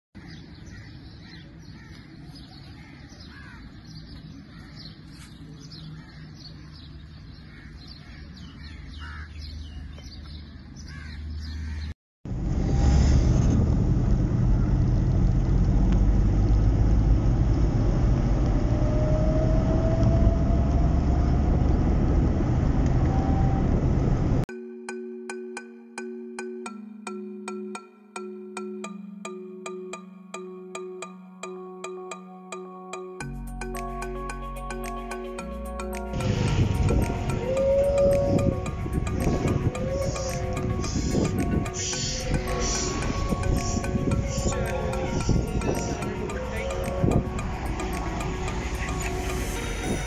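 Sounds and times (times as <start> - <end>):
crows cawing: 0.2 - 3.8, 4.4 - 5.0, 5.9 - 6.4, 7.4 - 9.5, 10.8 - 11.9
distant traffic rumble: 0.2 - 24.4, 35.5 - 50.0
vehicle rumble on road: 12.3 - 24.5, 36.1 - 50.0.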